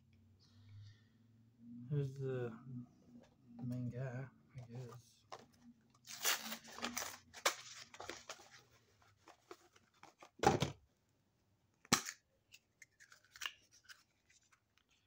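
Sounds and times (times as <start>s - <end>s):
foil wrapper crinkling and tearing: 6.1s - 8.0s.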